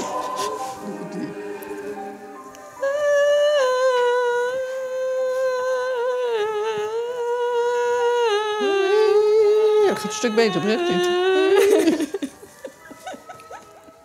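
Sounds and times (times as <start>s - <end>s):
elderly woman singing a long note: 2.8s - 14.0s.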